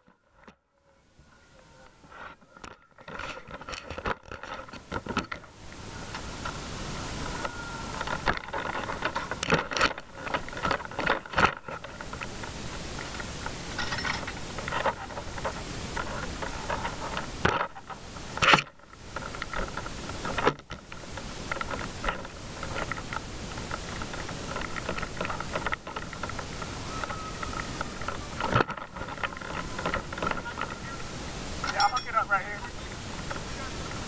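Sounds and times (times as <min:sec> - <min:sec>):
hose knocking and rustling: 0:07.9 - 0:30.8.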